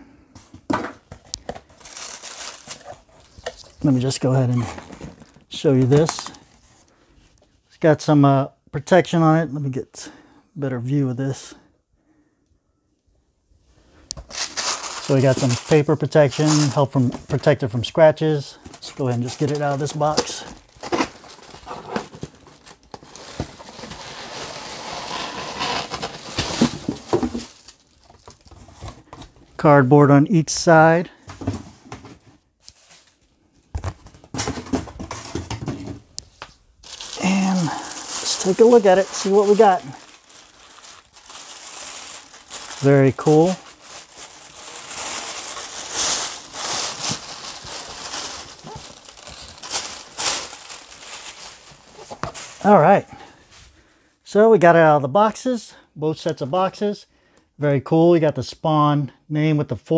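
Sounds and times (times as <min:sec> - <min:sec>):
tissue paper rustling: 0:01.7 - 0:05.4, 0:14.3 - 0:17.5, 0:18.8 - 0:28.9, 0:36.8 - 0:52.8.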